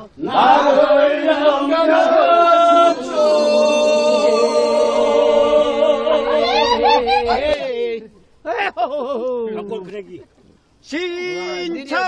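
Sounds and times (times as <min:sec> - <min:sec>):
group singing folk song: 0:00.0 - 0:08.2.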